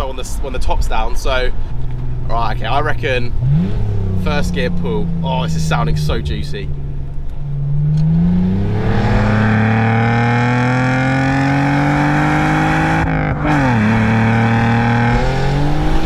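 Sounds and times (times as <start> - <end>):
car exhaust under hard acceleration: 0.0 - 16.0.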